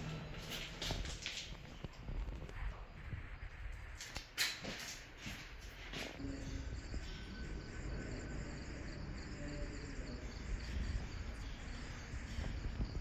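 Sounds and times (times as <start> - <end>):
crickets chirping: 6.1 - 13.0.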